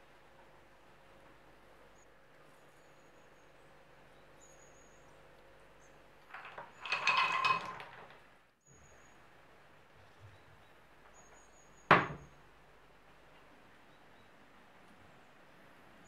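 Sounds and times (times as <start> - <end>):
chocolate chunks clattering into pan: 6.3 - 8.2.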